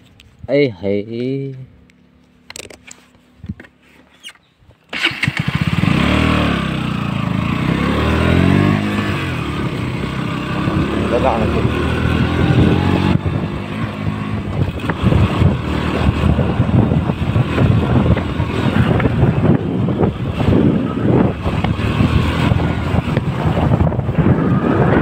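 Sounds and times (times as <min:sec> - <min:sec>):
motorcycle engine running: 0:05.0 - 0:25.0
wind buffeting microphone: 0:05.3 - 0:25.0.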